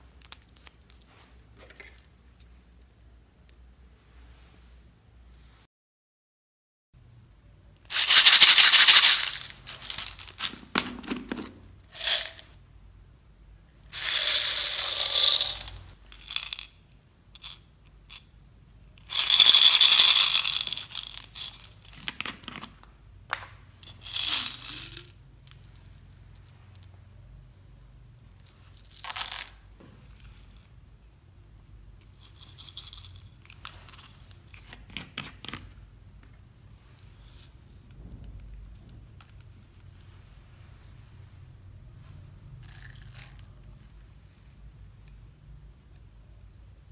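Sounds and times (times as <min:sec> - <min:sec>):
plastic beads rattling into bowl: 0:07.9 - 0:11.3, 0:11.9 - 0:12.5, 0:13.9 - 0:16.8, 0:17.4 - 0:18.2, 0:19.0 - 0:22.1, 0:23.8 - 0:25.8, 0:28.4 - 0:29.6, 0:32.1 - 0:34.4.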